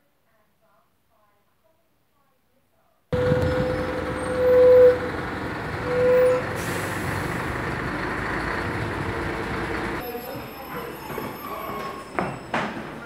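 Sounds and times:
heavy vehicle engine droning: 0:03.2 - 0:10.0.

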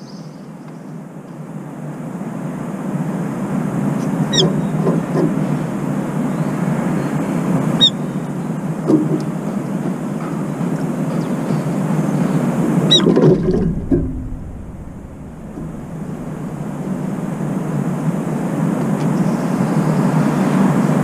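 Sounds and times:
low background rumble: 0:00.0 - 0:21.0
shrill bird call: 0:04.2 - 0:04.8, 0:05.6 - 0:08.6.

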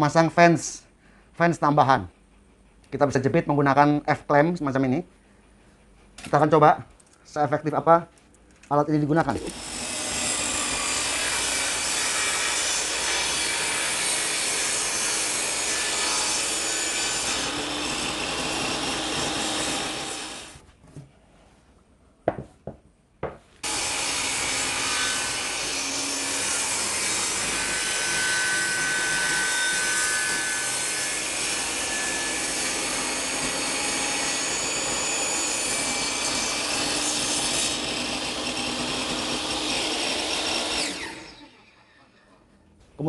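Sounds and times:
table saw cutting plywood: 0:09.4 - 0:20.6, 0:23.6 - 0:41.6.

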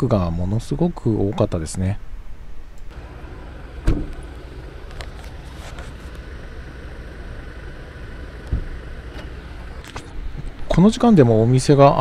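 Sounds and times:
steady low rumble: 0:02.0 - 0:12.0
car door thump: 0:03.8 - 0:04.2, 0:08.5 - 0:09.3
car door knock: 0:03.9 - 0:04.1.

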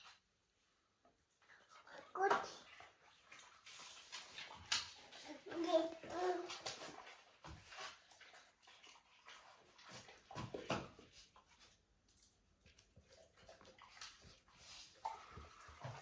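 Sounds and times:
dog chewing and smacking: 0:08.0 - 0:15.9.

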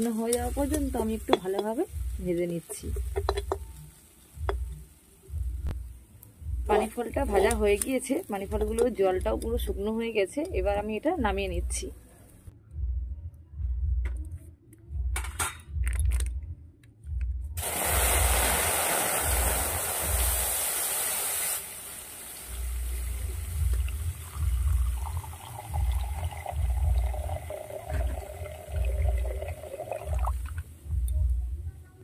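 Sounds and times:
milk pouring and splashing: 0:23.6 - 0:30.6.

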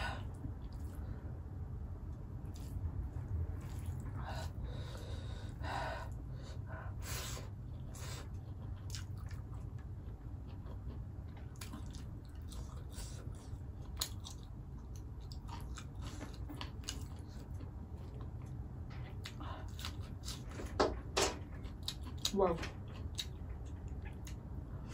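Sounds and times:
low steady hum: 0:00.0 - 0:24.9
close chewing with wet mouth clicks: 0:07.5 - 0:20.4, 0:21.6 - 0:24.5.

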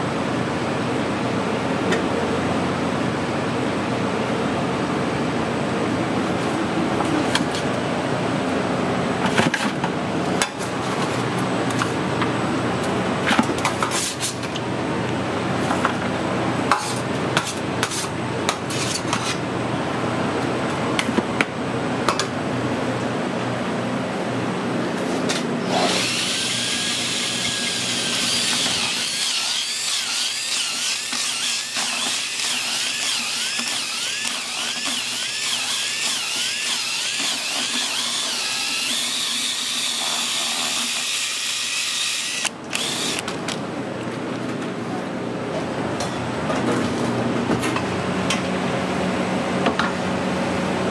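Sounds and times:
kitchen hum: 0:00.0 - 0:50.9
power drill whining: 0:25.7 - 0:43.2.

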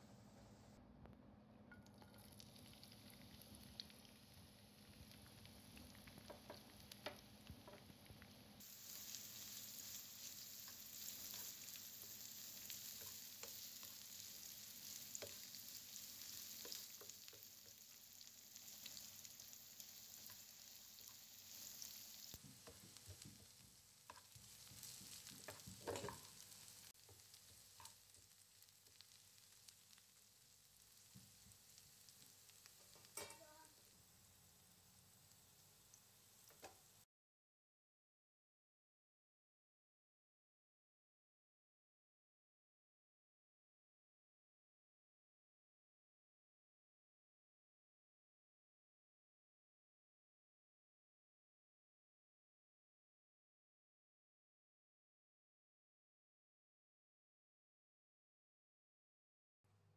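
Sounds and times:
onions sizzling in oil: 0:02.1 - 0:37.0.

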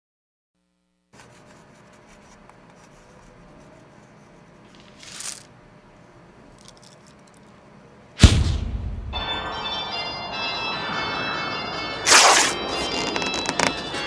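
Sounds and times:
chalk scratching on blackboard: 0:01.2 - 0:04.5
candies shaken from paper packet: 0:04.8 - 0:05.5.

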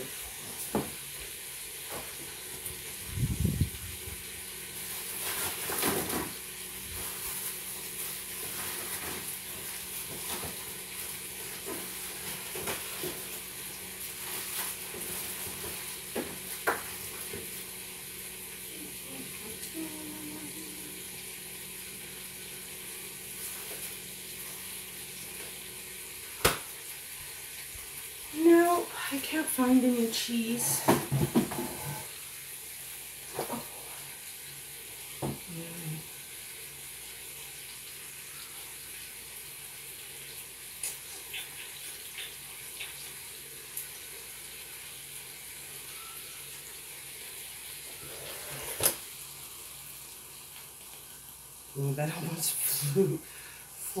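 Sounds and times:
meat sizzling with crackles: 0:00.0 - 0:54.0.

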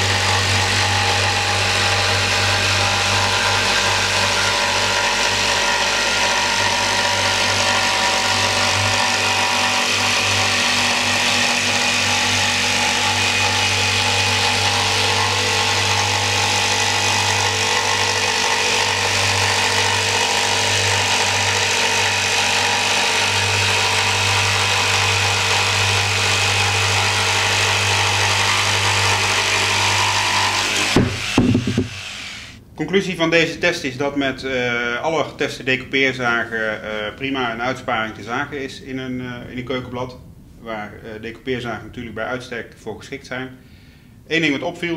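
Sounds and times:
electric jigsaw cutting board: 0:00.0 - 0:32.6.

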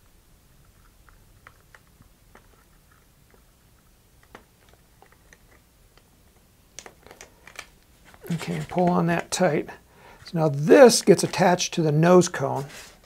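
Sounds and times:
low room hum: 0:00.0 - 0:13.0
rustling of hands tying cord: 0:00.6 - 0:09.6.

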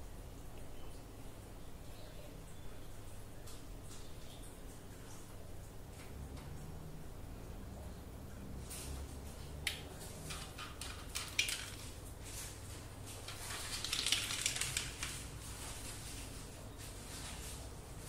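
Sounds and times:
dry cat kibble crackling: 0:10.2 - 0:12.0, 0:13.2 - 0:15.4.

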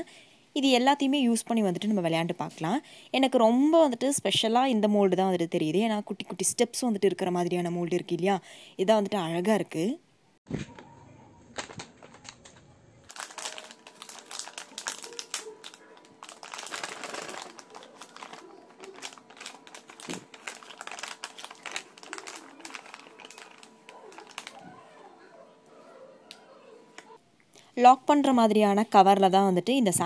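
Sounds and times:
plastic bag crinkling: 0:11.4 - 0:24.9.

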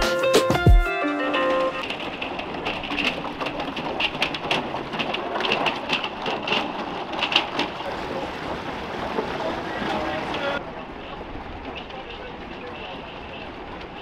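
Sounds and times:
ice cracking against boat hull: 0:01.8 - 0:10.4.

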